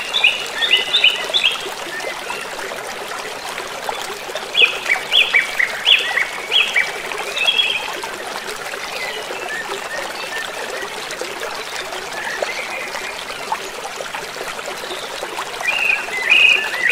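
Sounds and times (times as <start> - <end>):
stream trickling: 0.0 - 16.9
bird calls: 15.6 - 16.9.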